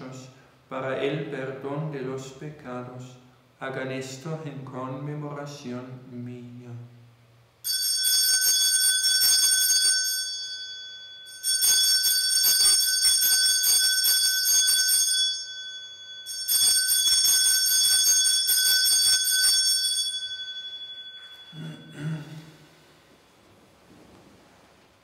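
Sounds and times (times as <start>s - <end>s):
altar bells jingling: 9.7s - 22.6s.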